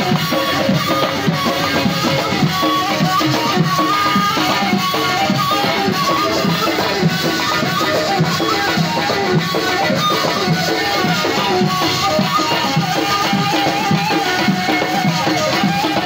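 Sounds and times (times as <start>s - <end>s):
steady drum beat: 0.0s - 16.0s.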